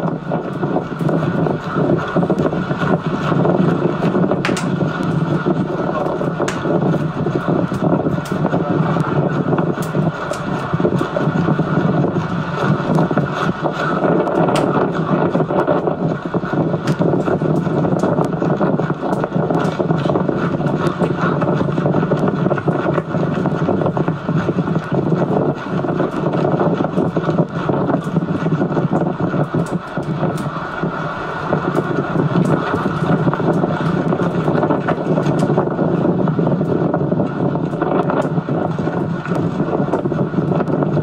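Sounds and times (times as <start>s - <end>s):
wind rushing on microphone: 0.0s - 41.0s.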